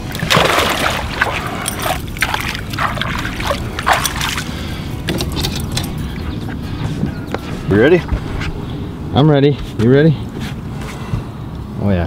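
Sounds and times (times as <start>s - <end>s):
fish splashing in water: 0.0s - 4.9s.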